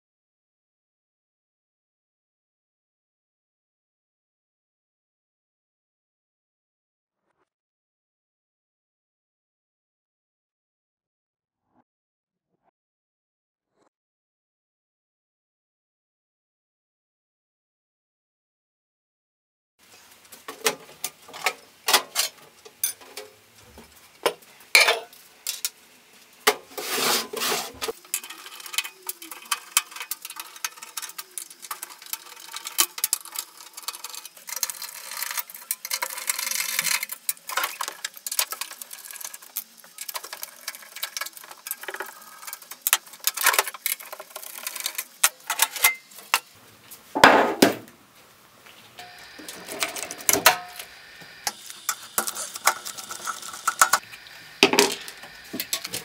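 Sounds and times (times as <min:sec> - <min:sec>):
metal clicks and scraping: 0:20.3 - 0:25.8, 0:26.5 - 0:46.6, 0:49.0 - 0:56.0.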